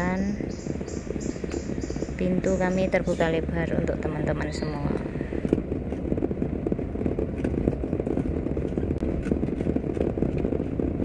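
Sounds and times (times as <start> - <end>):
car engine and tyre rumble: 0.0 - 11.0.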